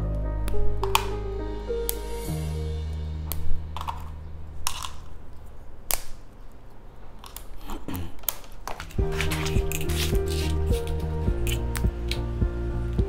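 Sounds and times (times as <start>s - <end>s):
plastic pieces snapping: 4.7s - 5.1s, 5.9s - 6.5s, 7.1s - 11.6s.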